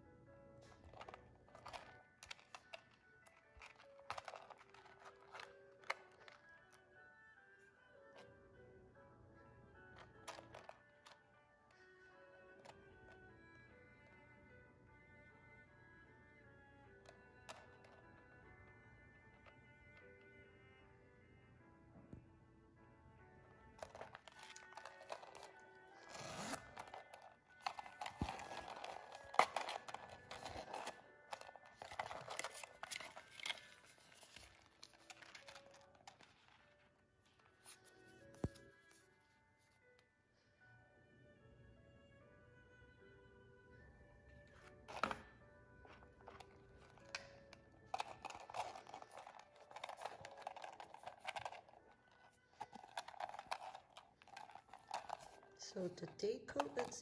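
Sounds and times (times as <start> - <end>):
paper crinkling and rustling: 23.8 - 36.8, 45.9 - 57.0
canvas pouch and zip clicks: 24.3 - 34.3.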